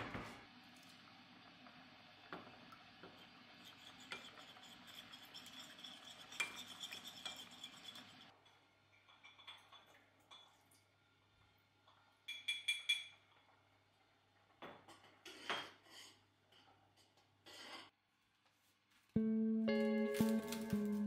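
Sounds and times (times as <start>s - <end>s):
metal spoon scraping ceramic bowl: 3.6s - 8.4s.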